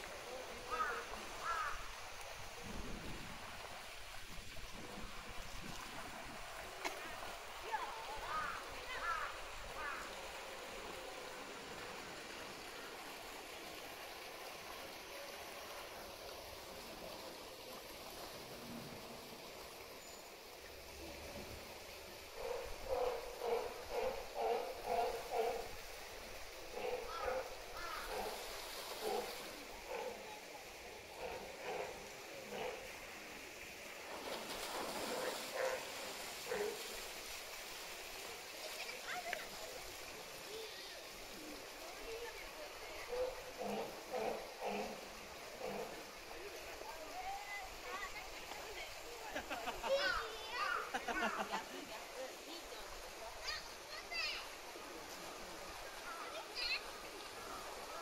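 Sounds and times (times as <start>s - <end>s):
running water rushing: 0.0s - 58.0s
murmur of distant voices: 21.0s - 37.1s, 38.0s - 58.0s.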